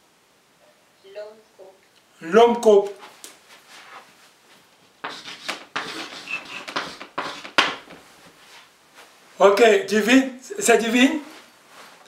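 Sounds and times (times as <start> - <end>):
chalk tap: 5.0 - 8.0
chalk scratching on blackboard: 5.0 - 8.6.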